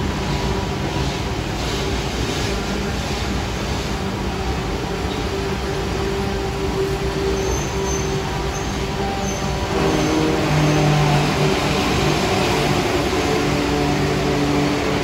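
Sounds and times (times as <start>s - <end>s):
train cars rumbling on rails: 0.0s - 15.0s.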